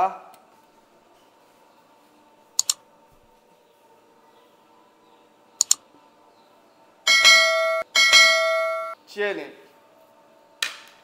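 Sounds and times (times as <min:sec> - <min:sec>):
double mouse-click sound effect: 0:02.6 - 0:02.8, 0:05.6 - 0:05.8.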